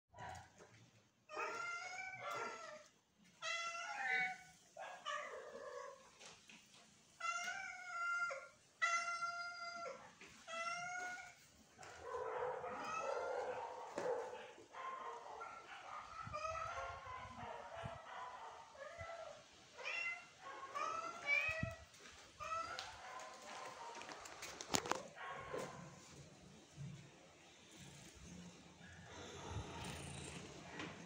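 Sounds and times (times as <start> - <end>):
cats meowing: 1.3 - 6.3, 7.2 - 12.0, 12.6 - 13.6, 16.1 - 17.4, 18.8 - 25.0.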